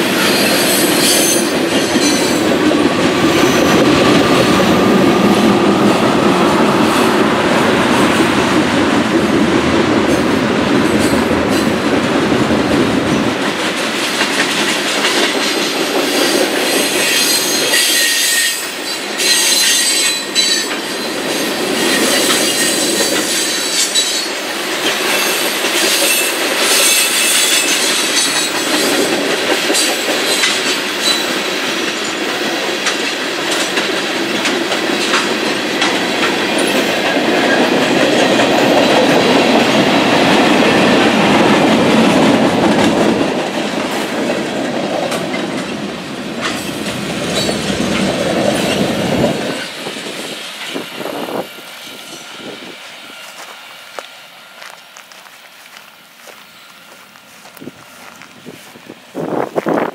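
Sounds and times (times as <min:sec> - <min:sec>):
train cars clattering over rail joints: 0:13.1 - 0:51.2
high wheel squeals: 0:16.3 - 0:24.4, 0:25.1 - 0:28.9.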